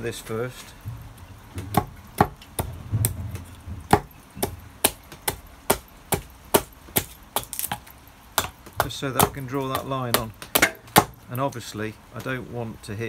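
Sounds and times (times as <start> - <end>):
axe chopping wood: 1.6 - 11.2.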